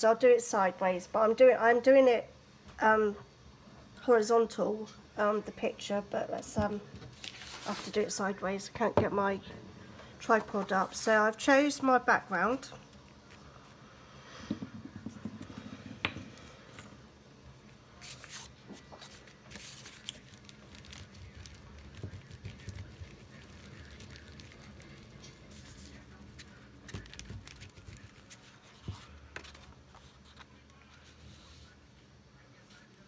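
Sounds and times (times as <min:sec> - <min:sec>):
paper rustling: 0:07.1 - 0:08.0, 0:18.0 - 0:31.8.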